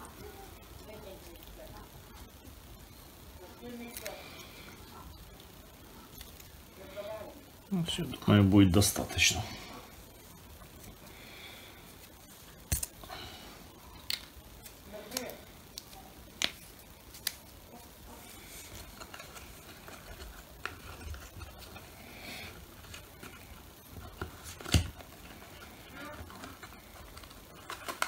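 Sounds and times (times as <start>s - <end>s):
quiet rustling: 15.8s - 28.0s.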